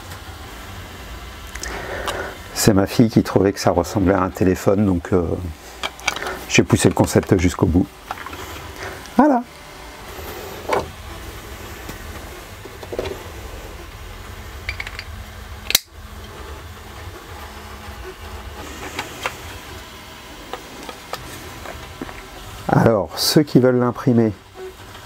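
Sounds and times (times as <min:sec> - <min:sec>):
low steady hum: 0:00.0 - 0:25.0
plastic parts clicking and knocking: 0:05.8 - 0:06.4, 0:14.6 - 0:15.9.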